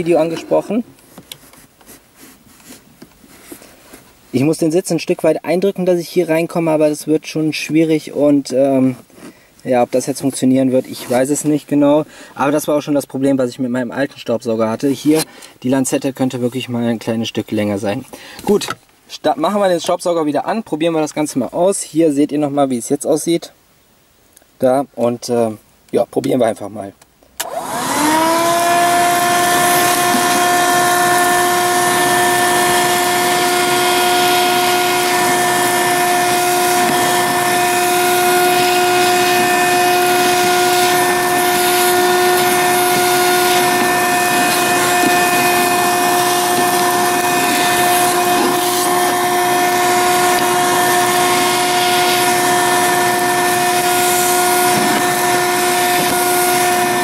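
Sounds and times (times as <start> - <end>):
vacuum cleaner motor whining: 27.4 - 57.0.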